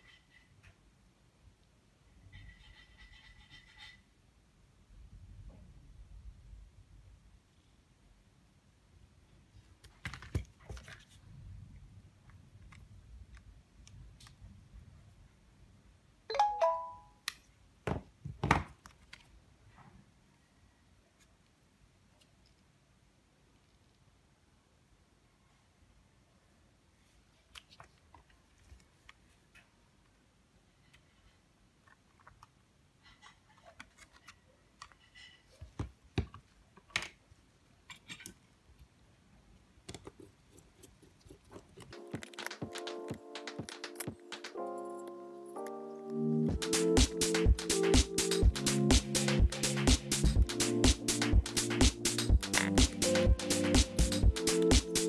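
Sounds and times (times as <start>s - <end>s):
phone two-note electronic chime: 16.3s - 17.2s
phone parts clicking and tapping: 41.8s - 44.1s.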